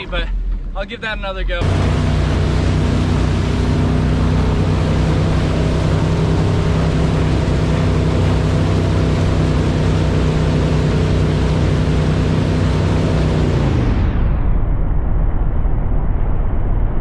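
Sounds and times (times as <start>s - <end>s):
boat engine humming: 0.0s - 13.9s
rushing wake water: 0.0s - 13.9s.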